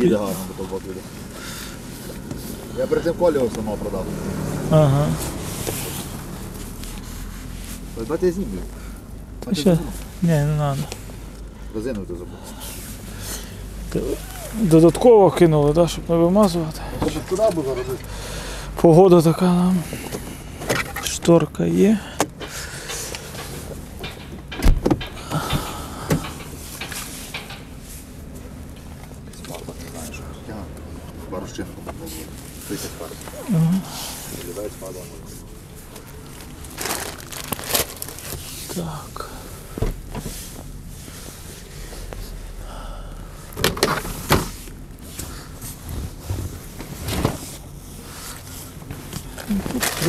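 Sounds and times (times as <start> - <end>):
car doors clunking: 22.1 - 29.6, 39.5 - 40.9, 43.5 - 47.8
thump: 24.6 - 26.2.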